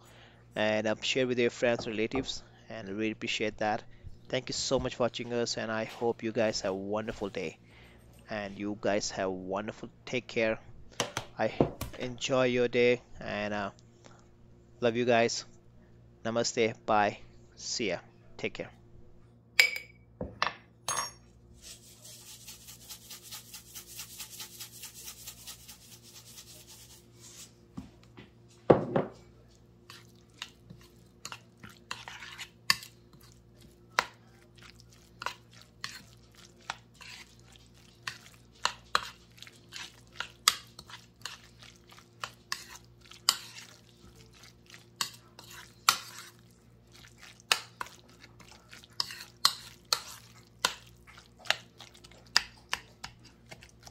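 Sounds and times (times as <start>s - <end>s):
spoon stirring in bowl: 21.6s - 27.5s, 29.4s - 53.9s
spoon clinking and scraping bowl: 29.9s - 33.4s, 35.1s - 53.9s.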